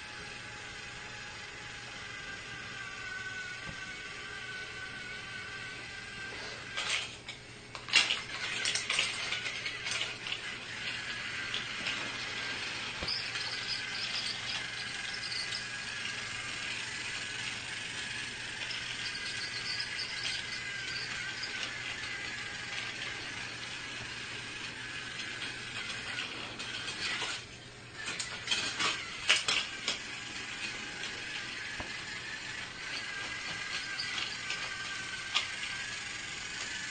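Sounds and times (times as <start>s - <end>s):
toy train motor whirring: 0.0s - 36.9s
clicks and clatter: 6.7s - 16.8s, 18.6s - 23.4s, 24.6s - 35.8s.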